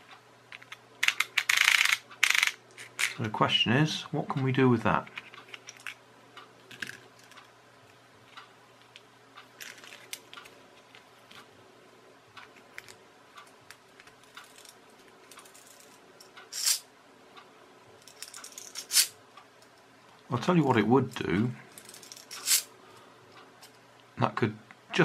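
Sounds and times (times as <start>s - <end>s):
plastic toy clicking: 0.6s - 2.6s.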